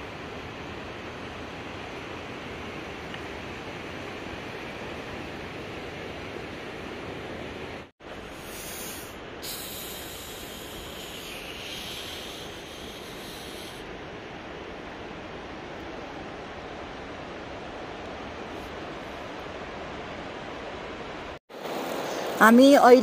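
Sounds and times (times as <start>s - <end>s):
hissing noise: 8.3s - 13.9s.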